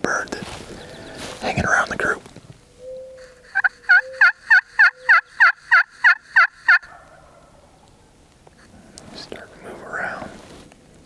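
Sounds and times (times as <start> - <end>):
turkey call yelps: 2.8 - 7.6.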